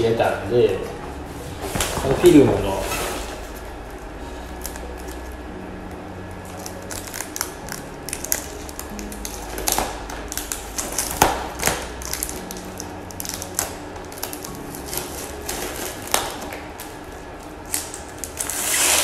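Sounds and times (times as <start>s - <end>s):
plastic film crackling: 0.0s - 19.0s
plastic film snaps: 4.6s - 5.4s, 6.5s - 19.0s.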